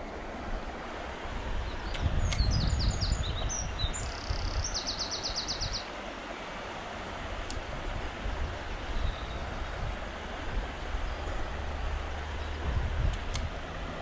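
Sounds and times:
songbird singing with trill: 0:01.6 - 0:05.9, 0:08.9 - 0:09.6
stony stream running: 0:03.2 - 0:14.0.

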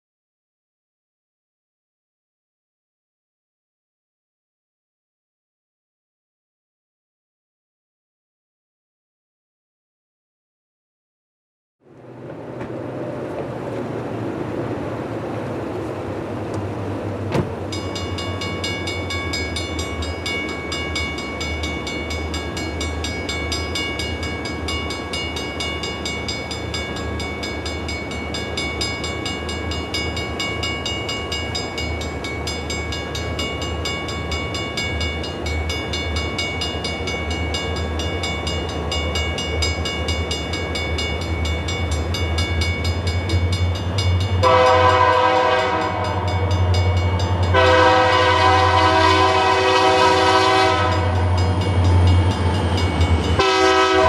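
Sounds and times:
diesel locomotive engines droning: 0:11.8 - 0:54.0
steady high ringing: 0:17.7 - 0:44.5, 0:45.8 - 0:47.6, 0:50.8 - 0:53.6.

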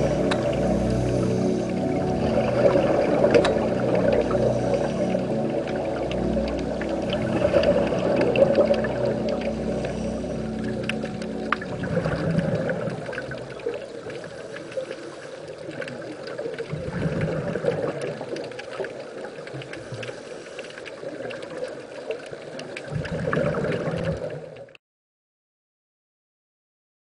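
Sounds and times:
underwater breath bubbling: 0:00.0 - 0:18.3, 0:22.9 - 0:24.6
faint crackle: 0:00.0 - 0:24.8.

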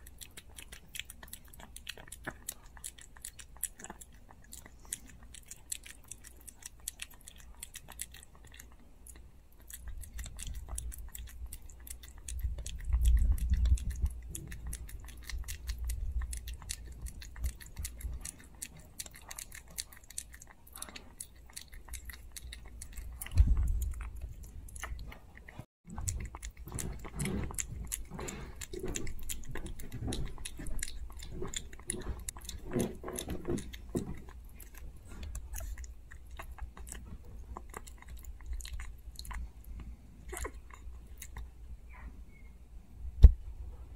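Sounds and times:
puppy licking and chewing food: 0:00.0 - 0:42.5
dull low thumps: 0:23.2 - 0:24.4, 0:43.0 - 0:43.9.

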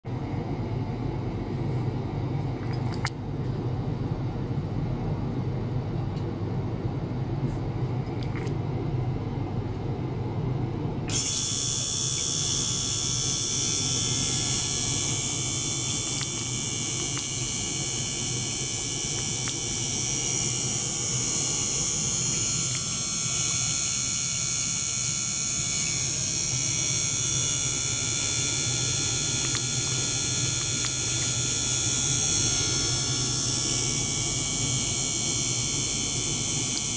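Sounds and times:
ultrasonic bath whine: 0:00.1 - 0:36.9
pump running: 0:11.1 - 0:36.9.

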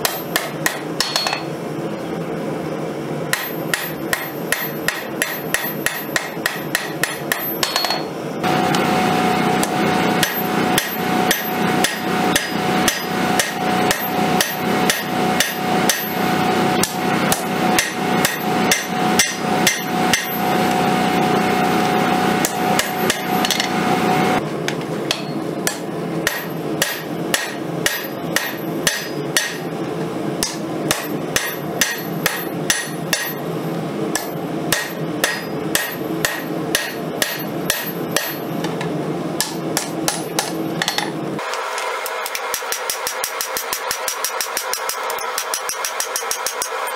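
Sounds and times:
hammer striking steel on anvil: 0:00.0 - 0:01.5, 0:03.3 - 0:08.1, 0:09.6 - 0:20.5, 0:22.4 - 0:23.8, 0:25.1 - 0:29.7, 0:30.4 - 0:33.4, 0:34.1 - 0:38.5, 0:39.4 - 0:41.2, 0:42.0 - 0:46.9
steady background hum: 0:00.0 - 0:46.9.

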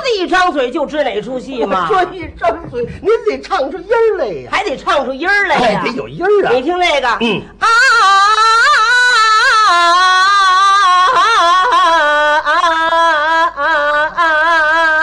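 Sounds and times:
woman singing opera melody: 0:07.6 - 0:15.0.

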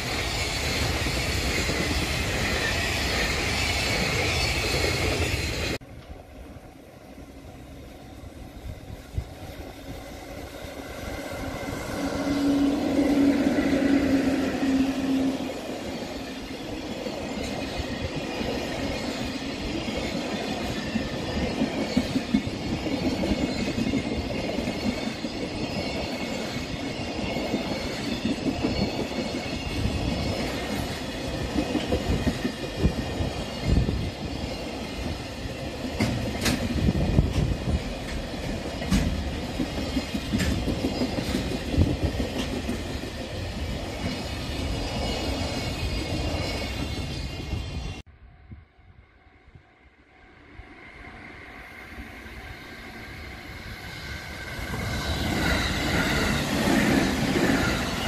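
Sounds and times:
train wheels rumbling on rail: 0:00.0 - 0:48.1, 0:51.1 - 0:58.0
wheels clacking over rail joints: 0:35.8 - 0:47.1.

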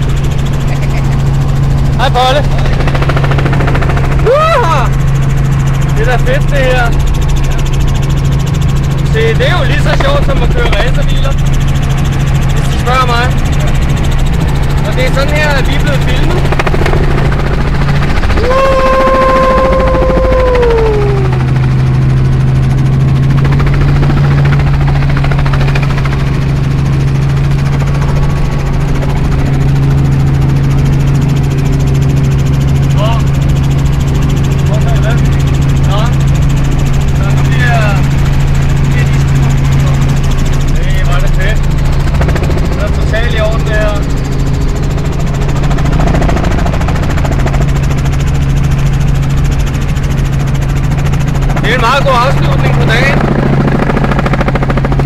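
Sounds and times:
helicopter engine and rotors drone: 0:00.0 - 0:55.0
held tone sliding down: 0:18.4 - 0:21.6.

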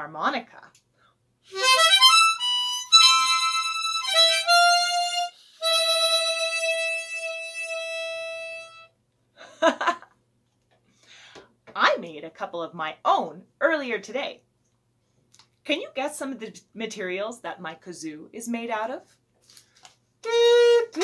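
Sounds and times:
harmonica playing: 0:01.5 - 0:08.9, 0:20.2 - 0:21.0
person laughing: 0:09.4 - 0:10.1.

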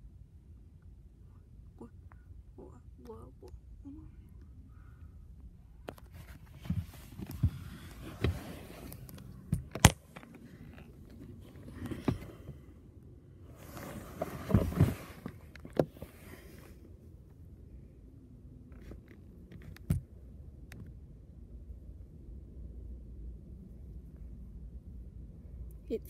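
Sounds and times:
low steady rumble: 0:00.0 - 0:26.0
phone handling thumps and rubbing: 0:06.0 - 0:12.4.

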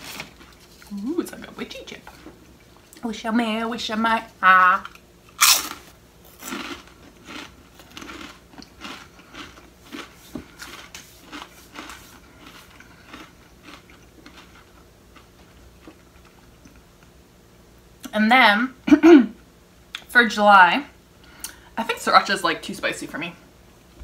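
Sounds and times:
crunchy chip being chewed: 0:04.9 - 0:16.8.

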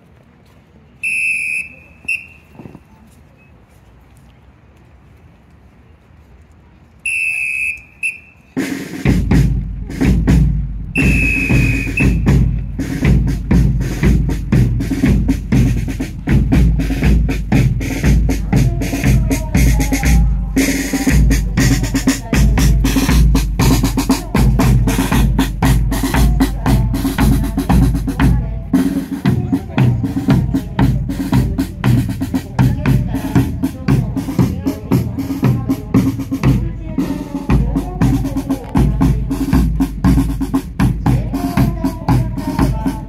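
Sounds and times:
whistle blowing: 0:01.0 - 0:02.7, 0:07.0 - 0:08.6, 0:10.9 - 0:12.4
marching drum cadence: 0:07.1 - 0:43.0.

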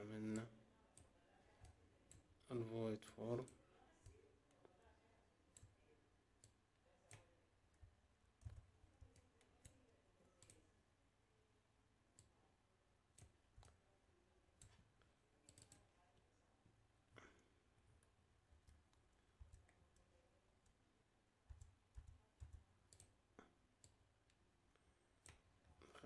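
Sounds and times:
computer mouse clicks: 0:06.4 - 0:10.7, 0:13.1 - 0:13.8, 0:14.6 - 0:15.9, 0:21.4 - 0:23.2.

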